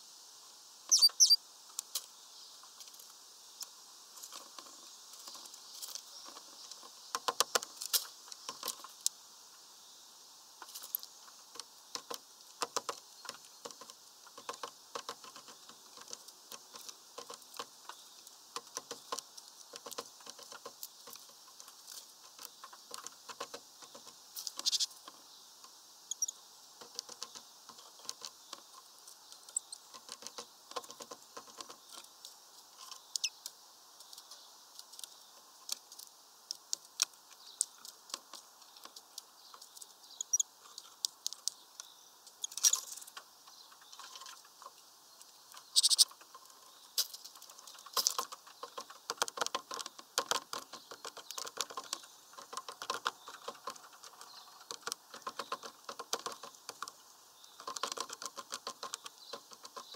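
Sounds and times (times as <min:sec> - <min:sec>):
faint high bird chirps: 0:00.9 - 0:01.4, 0:23.8 - 0:32.1, 0:32.8 - 0:35.5, 0:38.6 - 0:47.0
birds pecking and tapping: 0:00.9 - 0:09.2, 0:10.6 - 0:59.9.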